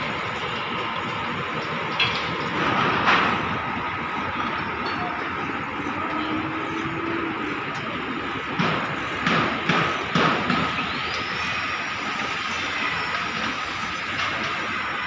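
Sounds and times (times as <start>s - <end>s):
city traffic: 0.0s - 15.0s
construction site noise: 0.0s - 15.0s
sharp knocks: 8.5s - 10.8s.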